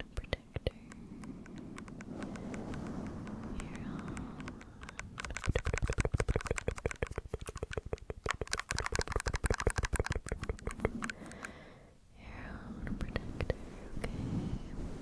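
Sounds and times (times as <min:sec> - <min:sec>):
scratching on microphone windscreen: 0:01.8 - 0:11.1.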